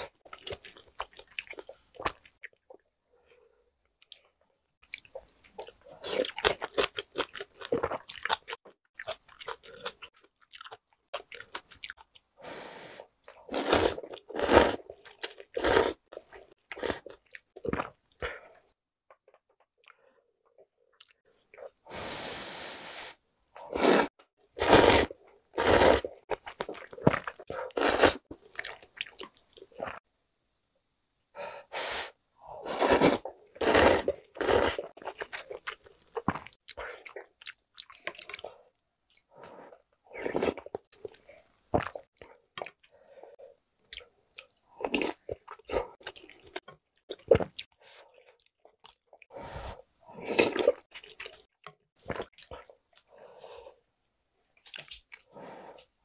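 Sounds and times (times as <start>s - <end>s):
noodles slurped: 23.7s - 28.8s, 32.6s - 35.3s.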